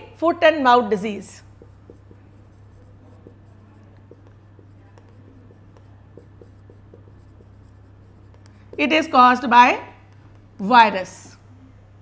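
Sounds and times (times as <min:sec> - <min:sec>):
low electrical hum: 0:00.0 - 0:12.0
marker pen scratching on whiteboard: 0:01.4 - 0:11.0.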